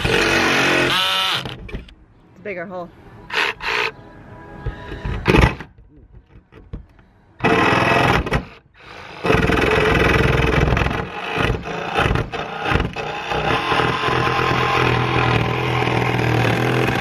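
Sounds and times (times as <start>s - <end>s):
jigsaw cutting sheet metal: 0.0s - 1.6s, 7.4s - 17.0s.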